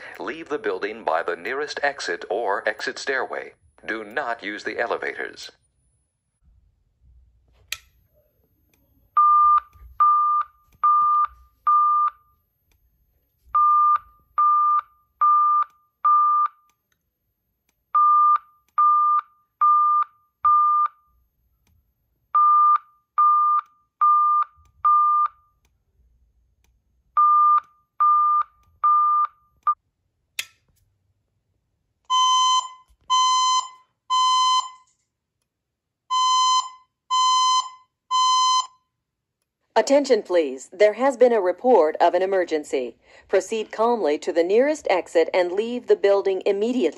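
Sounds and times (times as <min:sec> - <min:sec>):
click: 0:07.6 - 0:08.0, 0:16.6 - 0:17.8, 0:26.6 - 0:26.8, 0:39.4 - 0:39.6
fire alarm alert beeps: 0:09.2 - 0:12.4, 0:13.5 - 0:16.7, 0:18.0 - 0:21.2, 0:22.4 - 0:25.5, 0:27.2 - 0:29.8, 0:32.1 - 0:35.0, 0:36.1 - 0:39.0
harsh buzzy evacuation beeps: 0:32.1 - 0:34.9, 0:36.1 - 0:38.8.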